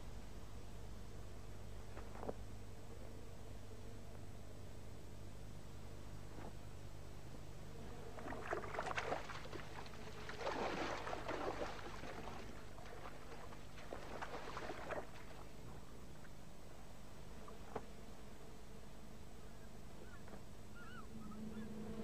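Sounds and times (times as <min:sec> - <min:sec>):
water splashing: 0:08.1 - 0:16.3.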